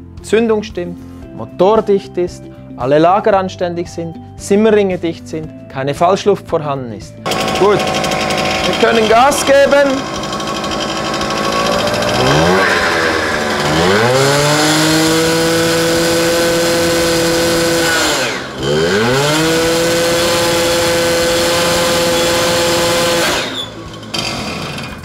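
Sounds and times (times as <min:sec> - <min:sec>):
two-stroke moped engine revving: 0:07.2 - 0:25.0.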